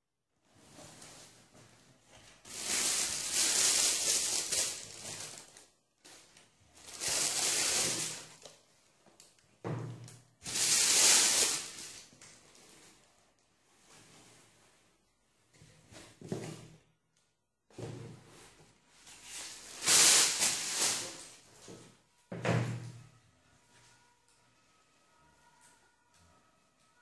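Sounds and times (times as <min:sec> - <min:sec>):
tissue paper rustling: 0:00.6 - 0:08.5, 0:10.4 - 0:15.0, 0:18.3 - 0:21.7.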